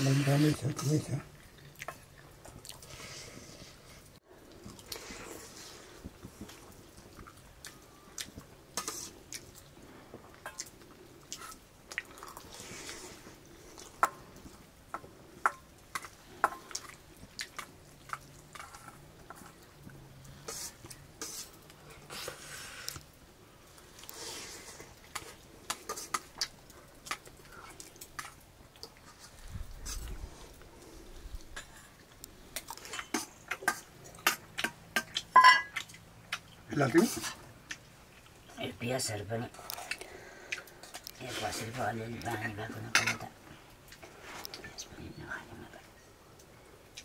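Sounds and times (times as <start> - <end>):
chewing and mouth smacks: 1.4 - 3.0, 4.5 - 5.2, 6.0 - 13.0, 13.6 - 21.0, 24.8 - 30.2, 31.5 - 36.7, 37.6 - 38.5
spoon clinking on metal: 35.4 - 35.7.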